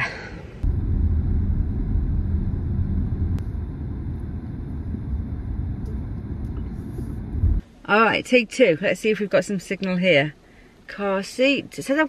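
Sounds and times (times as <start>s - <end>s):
car engine rumbling: 0.4s - 7.7s.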